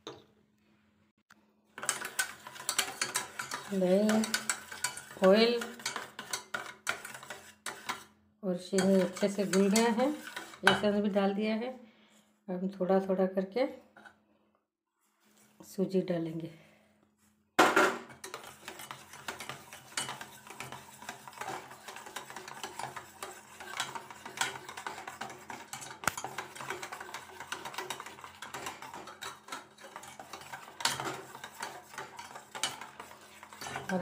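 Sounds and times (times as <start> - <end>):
utensil scraping steel bowl: 1.8 - 11.2, 18.1 - 34.0.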